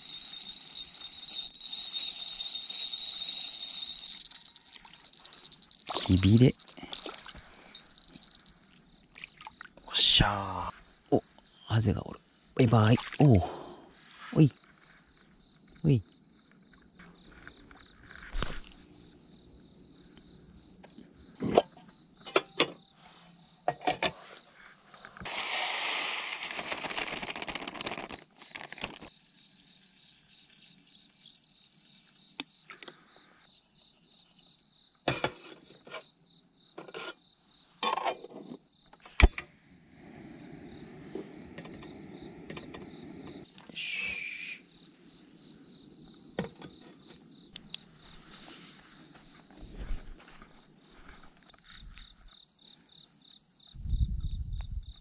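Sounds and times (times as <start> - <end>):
insects trilling: 0.0 - 55.0.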